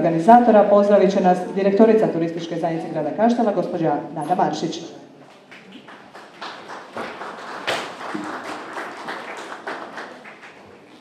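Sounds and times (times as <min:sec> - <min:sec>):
audience applauding: 0:05.5 - 0:11.0.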